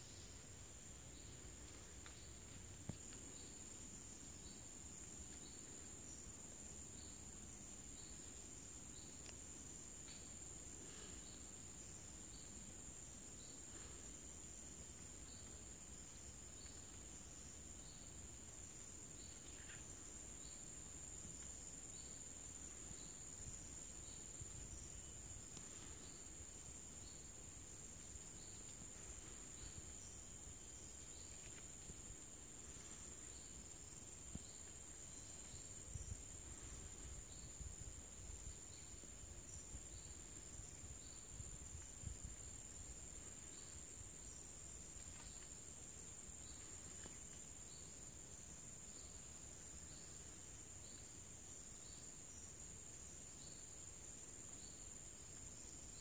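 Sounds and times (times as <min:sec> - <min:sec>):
high-pitched insect drone: 0:28.0 - 0:37.7
faint chirp: 0:32.6 - 0:37.7.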